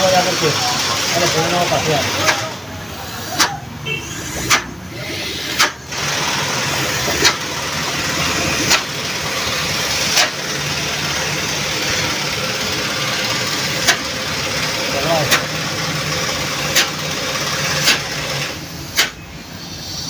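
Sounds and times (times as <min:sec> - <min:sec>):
motor running: 0:04.1 - 0:18.6
sharp clicks: 0:04.4 - 0:04.7, 0:05.6 - 0:06.0, 0:19.0 - 0:19.2.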